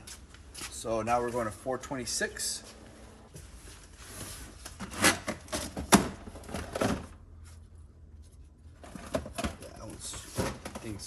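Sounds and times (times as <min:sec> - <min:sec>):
items knocking and clattering: 0:05.3 - 0:07.2, 0:08.8 - 0:11.0.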